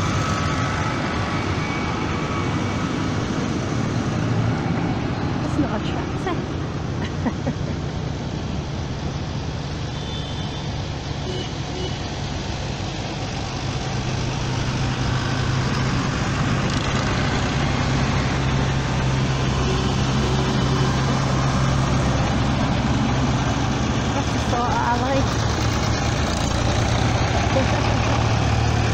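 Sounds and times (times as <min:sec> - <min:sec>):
tractor engines droning: 0:00.0 - 0:28.9.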